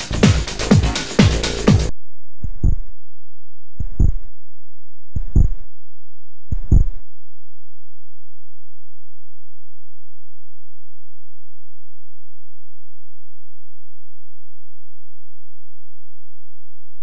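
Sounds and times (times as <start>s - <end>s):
deep synthesized drum hits: 0.0s - 1.9s.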